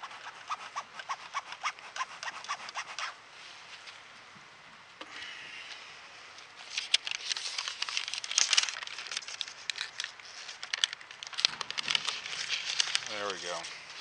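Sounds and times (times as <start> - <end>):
paper crinkling: 6.6 - 14.0.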